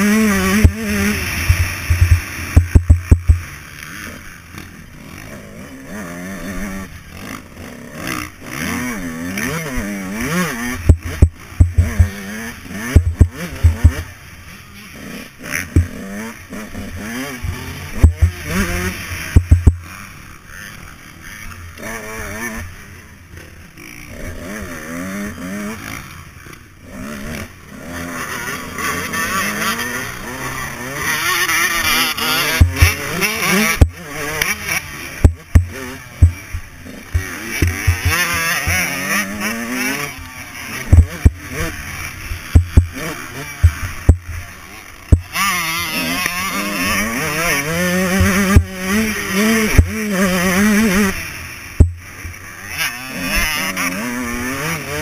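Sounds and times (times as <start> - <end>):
dirt bike engine revving: 0.0 - 55.0
loud thumps: 1.5 - 3.5, 10.9 - 12.1, 19.4 - 19.8, 35.2 - 36.4.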